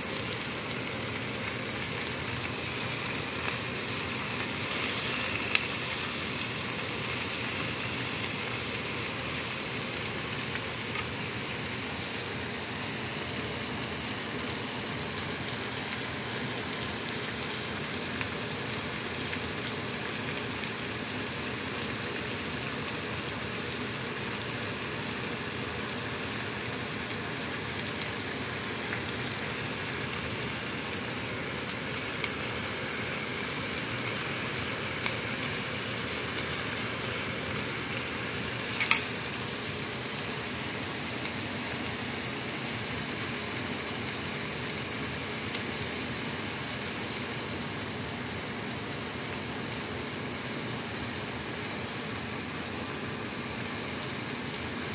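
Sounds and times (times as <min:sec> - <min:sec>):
food sizzling in a wok: 0:00.0 - 0:54.9.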